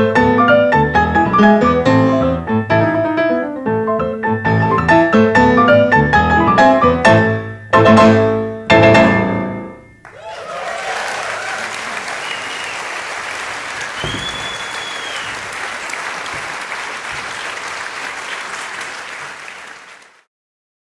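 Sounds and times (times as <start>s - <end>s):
high whistles: 9.9s - 20.0s
audience applauding: 10.0s - 20.3s.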